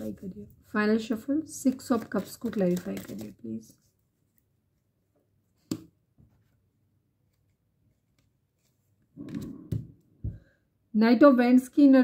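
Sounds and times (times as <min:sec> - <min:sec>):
cards rustling: 0:01.7 - 0:04.4.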